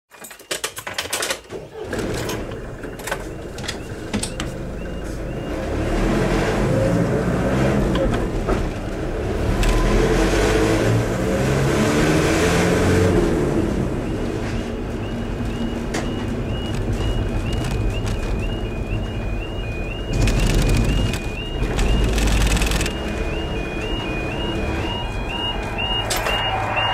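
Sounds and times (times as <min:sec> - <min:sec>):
car engine and road noise: 0:01.6 - 0:26.9
knocks and clicks: 0:15.4 - 0:19.1, 0:20.1 - 0:23.0.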